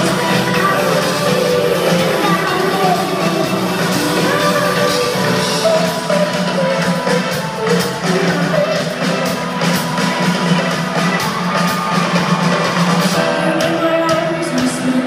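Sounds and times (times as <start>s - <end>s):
live pop band playing: 0.0s - 15.0s
person singing: 0.0s - 15.0s.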